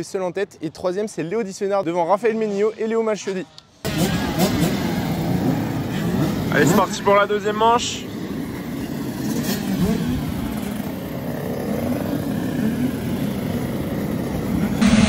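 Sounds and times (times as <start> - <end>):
motocross bikes revving: 3.8 - 15.0.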